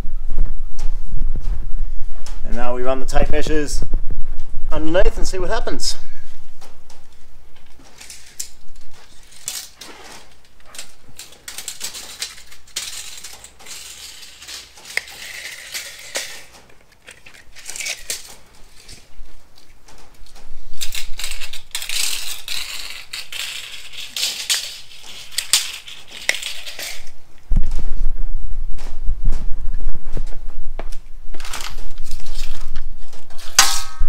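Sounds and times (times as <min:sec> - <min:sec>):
tape measure blades rattling and scraping: 0:07.7 - 0:27.2, 0:31.4 - 0:34.0.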